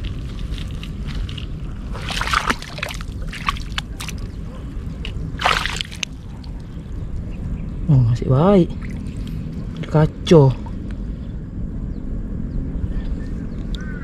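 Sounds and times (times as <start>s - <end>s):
hand splashing in muddy water: 1.9s - 4.3s, 5.4s - 6.5s.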